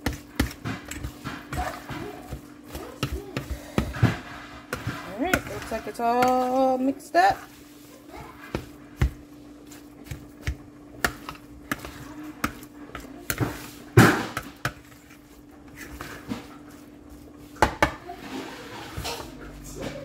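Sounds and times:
steady hum: 0.0s - 20.0s.

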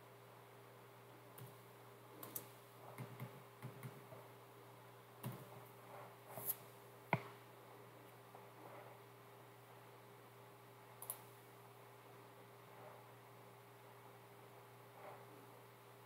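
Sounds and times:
faint steady hum: 0.0s - 16.0s
computer keyboard keystrokes: 2.2s - 4.0s.

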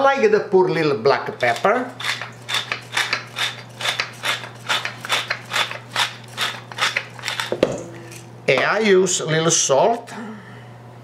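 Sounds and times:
pepper mill grinding: 1.3s - 8.3s.

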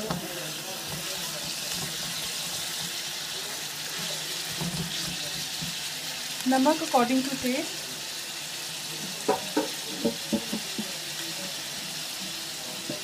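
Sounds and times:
vegetables sizzling in a frying pan: 0.0s - 13.0s
wooden spatula knocking: 9.3s - 11.0s.

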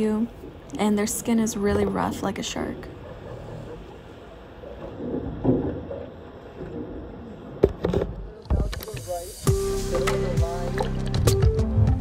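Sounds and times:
background music: 9.3s - 12.0s.

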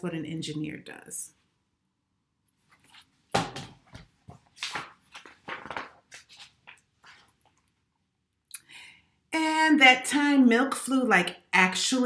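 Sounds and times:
book pages rustling and flapping: 2.6s - 7.7s.

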